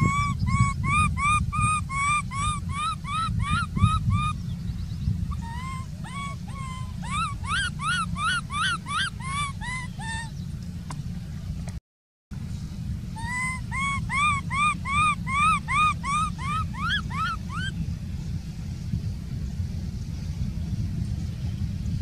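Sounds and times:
baby monkey whimpering cries: 0.0 - 4.4, 5.3 - 10.3, 13.2 - 17.7.

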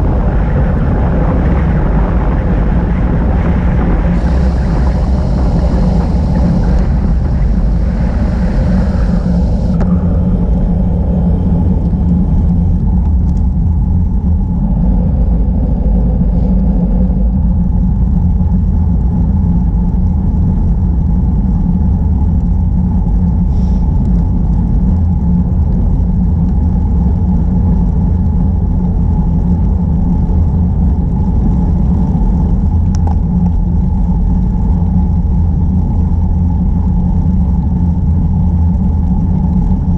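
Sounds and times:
wind buffeting: 0.0 - 39.9
bright hiss: 4.1 - 11.1.

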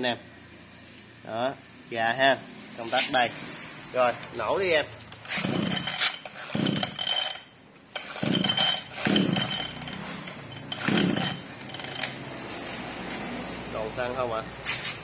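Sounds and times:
recoil starter tugs: 5.1 - 12.3
two-stroke engine cranking: 5.1 - 12.3.

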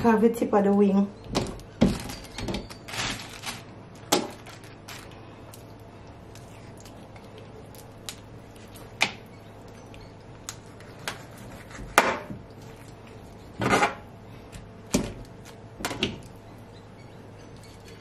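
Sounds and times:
knife scraping: 10.7 - 12.2.

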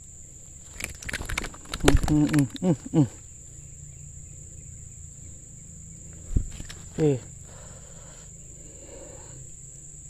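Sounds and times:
insects droning: 0.0 - 10.0.

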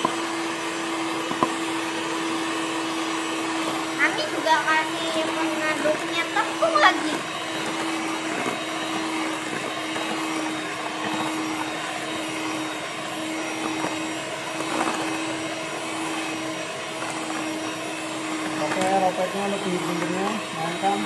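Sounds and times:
electric hand mixer running: 0.0 - 21.0.

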